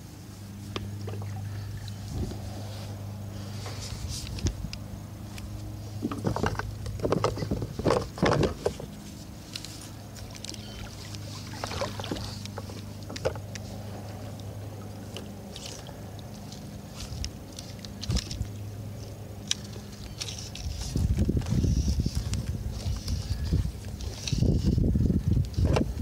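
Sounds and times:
steady low hum: 0:00.0 - 0:26.0
water splashing against kayak hull: 0:05.9 - 0:18.6.

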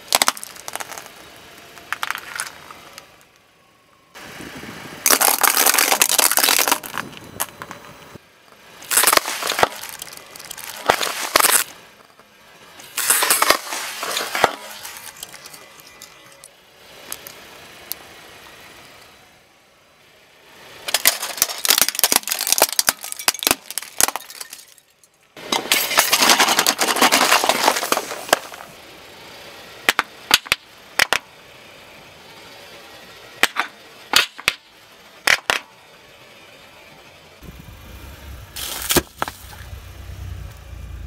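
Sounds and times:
tyre crushing plastic: 0:00.0 - 0:01.2, 0:05.1 - 0:07.6, 0:08.8 - 0:11.7, 0:12.8 - 0:16.4, 0:20.9 - 0:24.8, 0:25.5 - 0:28.7.

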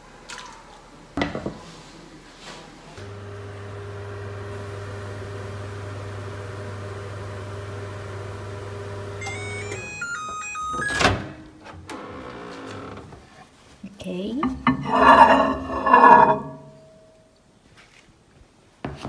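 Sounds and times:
microwave oven humming: 0:03.0 - 0:13.0
electronic beeps: 0:09.2 - 0:11.1.

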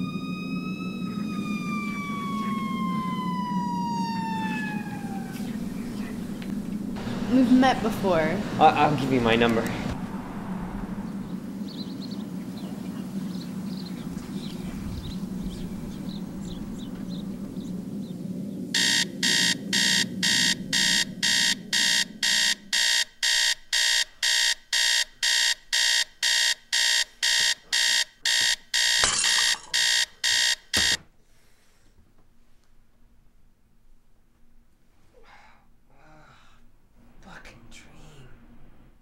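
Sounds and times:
low hum: 0:00.0 - 0:24.2
alarm clock beeping: 0:18.8 - 0:31.0.

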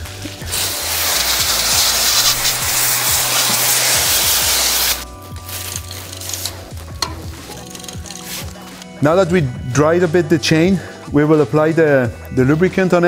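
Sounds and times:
hose spraying water on bicycle: 0:00.0 - 0:08.8
quiet background music: 0:00.0 - 0:13.0
cloth wiping chain: 0:00.2 - 0:08.9.

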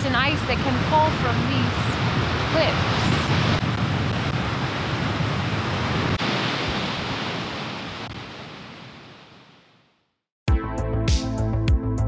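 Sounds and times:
wind rumble on microphone: 0:00.0 - 0:09.5.

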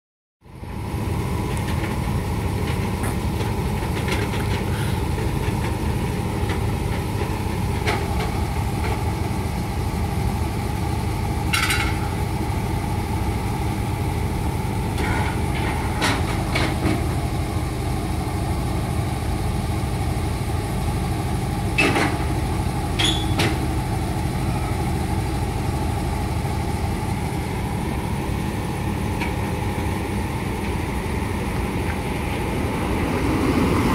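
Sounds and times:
combine harvester engine idling: 0:00.4 - 0:33.9
sharp knocks of trailer ramps: 0:21.7 - 0:23.8.

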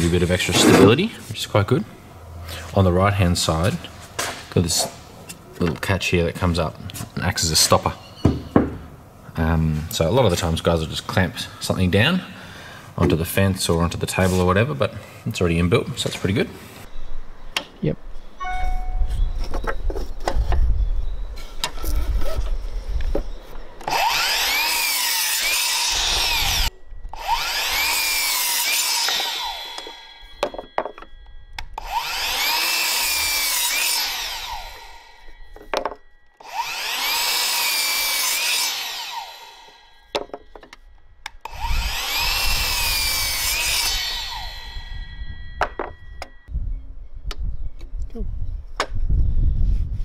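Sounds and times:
mitre saw cutting wood: 0:00.4 - 0:01.0, 0:23.8 - 0:30.8, 0:31.8 - 0:35.7, 0:36.4 - 0:40.0, 0:41.4 - 0:45.0
timber knocking: 0:29.2 - 0:31.1.

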